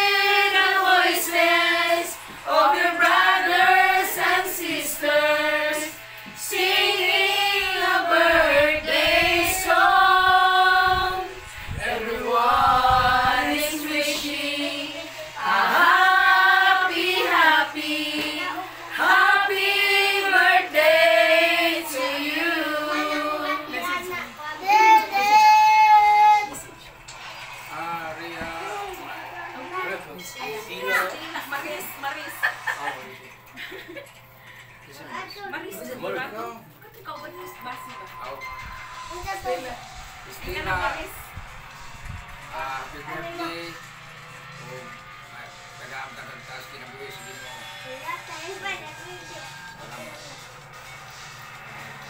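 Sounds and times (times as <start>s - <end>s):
group of women singing: 0.0s - 23.9s.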